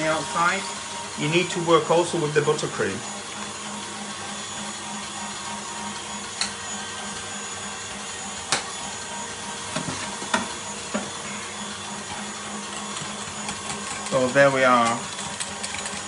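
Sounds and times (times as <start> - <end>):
mechanical hum and hiss: 0.0 - 16.0.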